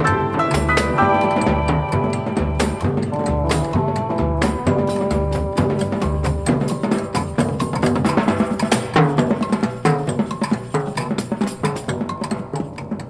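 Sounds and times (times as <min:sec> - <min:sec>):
piano notes: 0:00.0 - 0:07.0
quick dense percussion: 0:00.0 - 0:13.0.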